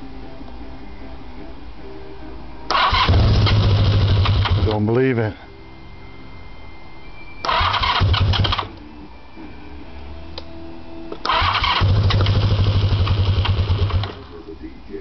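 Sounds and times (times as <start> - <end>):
motorcycle engine cranking on starter: 2.7 - 4.8, 7.5 - 8.7, 11.3 - 14.3.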